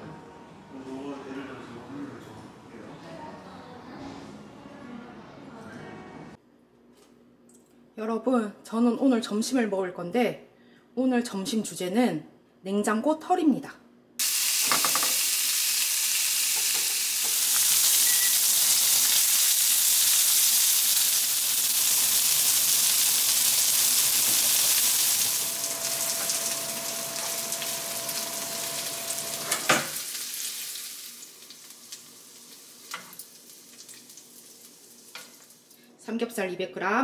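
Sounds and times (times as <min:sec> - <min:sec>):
pork sizzling in a frying pan: 0:14.2 - 0:35.8.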